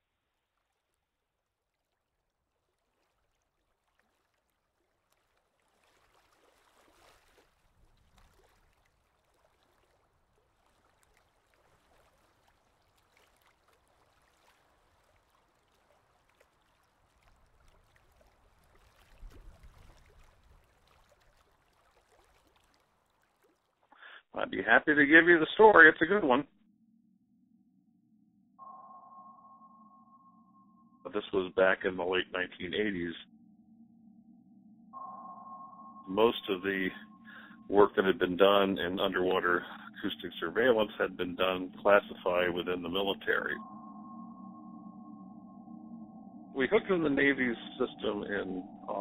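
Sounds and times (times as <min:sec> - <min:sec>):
low rumble: 0:26.6 - 0:49.0.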